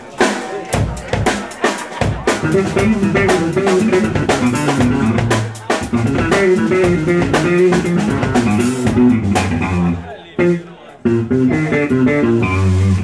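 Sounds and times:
snare drum strokes: 0.0 - 9.6
bass guitar line: 2.0 - 13.0
electric guitar: 2.2 - 13.0.

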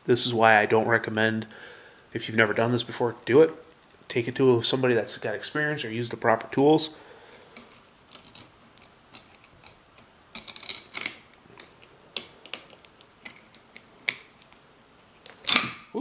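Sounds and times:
metallic clicks and scrapes: 7.3 - 14.3.

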